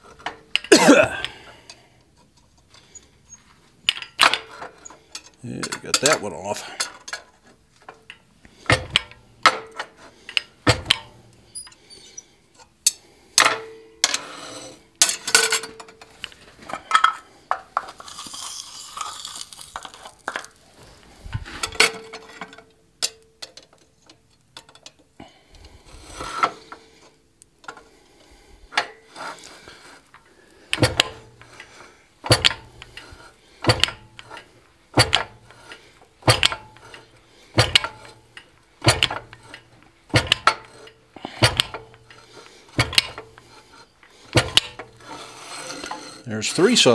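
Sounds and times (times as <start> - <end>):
fly press metallic clanks: 3.8 - 12.2, 30.7 - 46.3.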